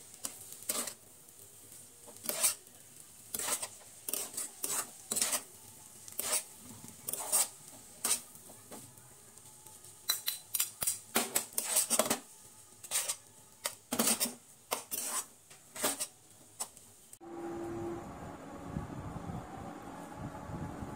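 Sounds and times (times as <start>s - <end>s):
metal spatulas scraping frying pan: 0.2s - 1.0s, 2.1s - 8.4s, 10.1s - 16.8s.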